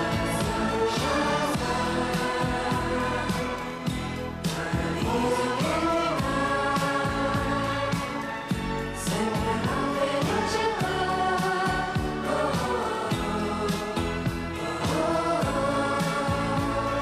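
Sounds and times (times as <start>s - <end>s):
pop music chords and bass: 0.0s - 17.0s.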